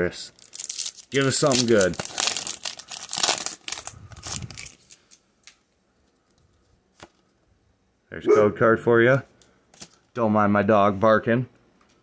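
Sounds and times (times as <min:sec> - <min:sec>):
foil wrapper crinkling and tearing: 0:00.4 - 0:05.6
faint clicks of cards handled: 0:04.6 - 0:07.4.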